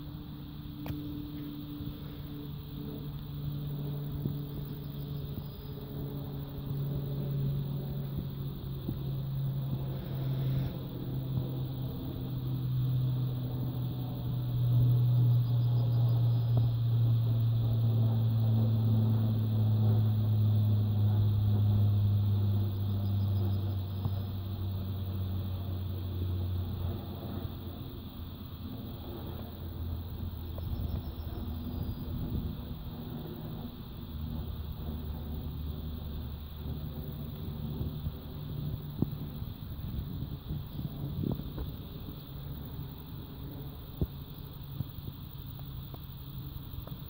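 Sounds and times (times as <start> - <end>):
low engine hum: 0.0 - 47.0.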